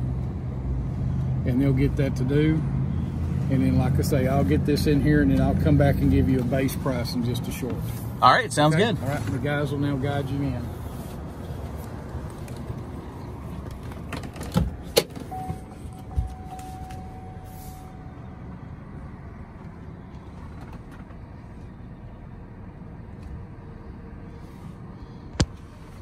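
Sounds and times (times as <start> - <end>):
pickup truck engine rumble: 8.9 - 26.0
thin steady whine: 15.3 - 19.8.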